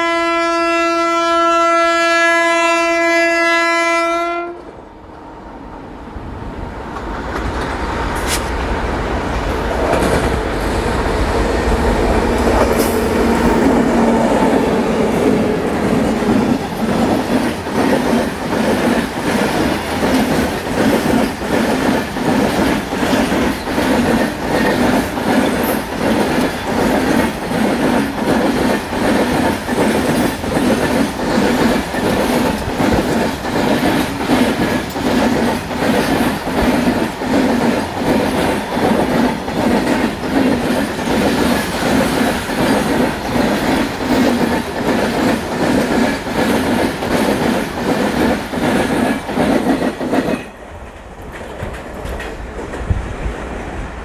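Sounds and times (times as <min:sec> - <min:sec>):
electric locomotive hum: 0:00.0 - 0:54.0
train wheels clattering over rail joints: 0:15.6 - 0:53.0.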